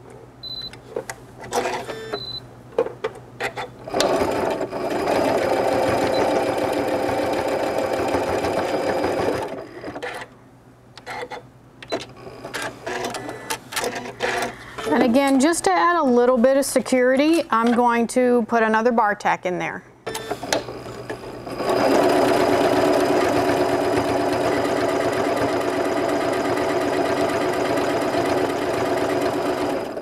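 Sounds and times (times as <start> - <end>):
sewing machine running: 3.9 - 10.2, 20.5 - 30.0.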